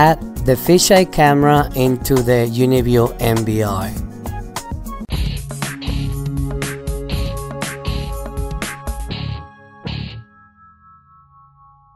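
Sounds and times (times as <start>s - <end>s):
beat hits: 5.1s - 10.2s.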